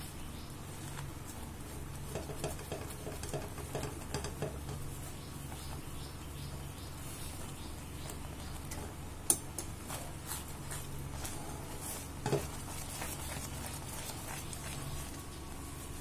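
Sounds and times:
faint sizzle: 0.0s - 16.0s
spatula stirring thick paste: 0.6s - 16.0s
spatula knocking against pan: 2.1s - 4.9s.

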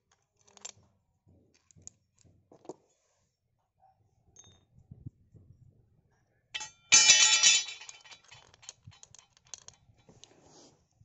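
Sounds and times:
metallic rattle: 6.6s - 9.8s
saw chain clinking and jangling: 6.6s - 10.1s.

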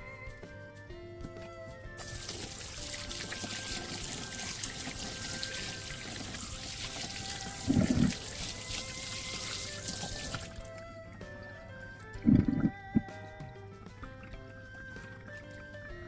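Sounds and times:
background music: 0.0s - 16.0s
water running and splashing: 2.0s - 10.8s.

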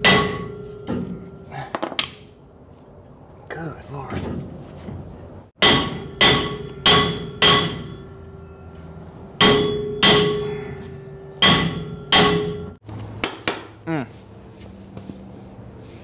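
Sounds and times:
hammer ringing on brake drum: 0.0s - 1.3s, 5.6s - 8.5s, 9.4s - 13.6s.

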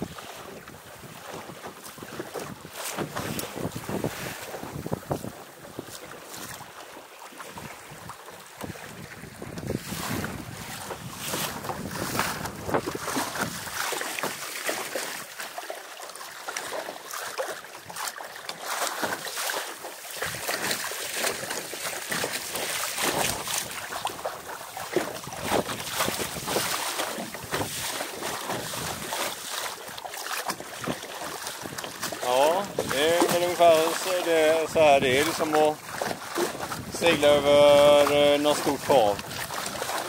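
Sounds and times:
wind buffeting microphone: 0.0s - 6.6s, 7.5s - 13.9s, 22.9s - 29.4s, 30.5s - 40.0s
water splashing along hull: 0.0s - 40.0s.

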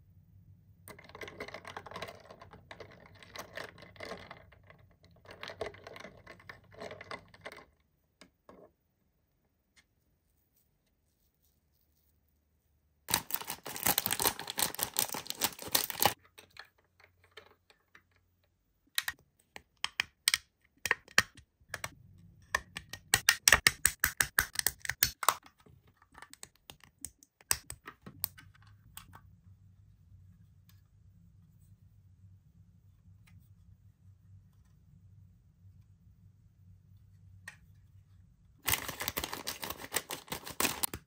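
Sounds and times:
plastic packaging crinkling: 13.1s - 16.2s, 38.6s - 41.0s.

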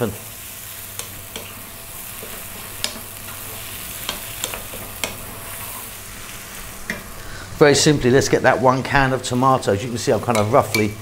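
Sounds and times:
food sizzling in frying pan: 0.0s - 11.0s
spoon knocking against pan: 10.3s - 11.0s.

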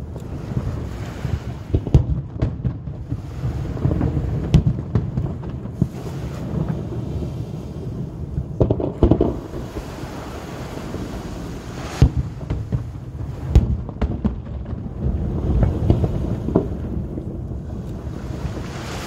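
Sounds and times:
firework shells bursting: 8.6s - 10.3s.

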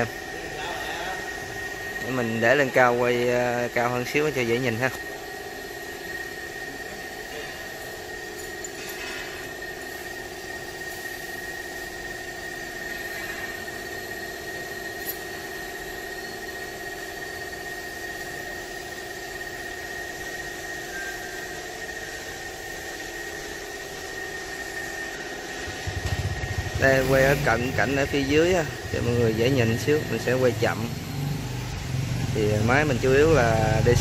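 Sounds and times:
high-pitched whine: 0.0s - 34.0s
engine idling: 25.4s - 34.0s.

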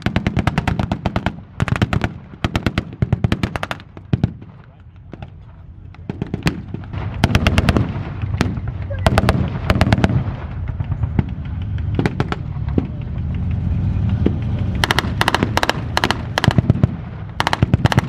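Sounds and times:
rifle shots: 0.0s - 5.4s, 6.0s - 13.0s, 14.7s - 18.0s
tanks rumbling on tracks: 4.8s - 18.0s.

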